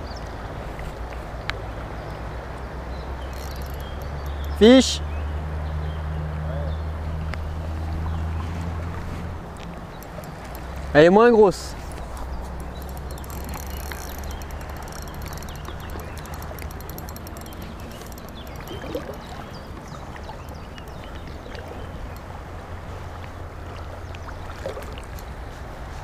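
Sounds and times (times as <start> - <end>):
fast faint ticking: 3.2 - 4.8, 9.8 - 11.0, 11.7 - 22.4.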